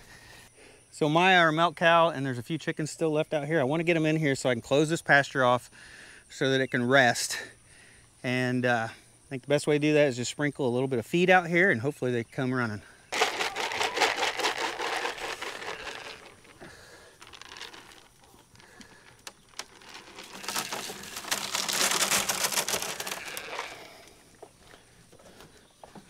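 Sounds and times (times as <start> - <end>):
pellets pouring onto ground: 13.1 - 24.1.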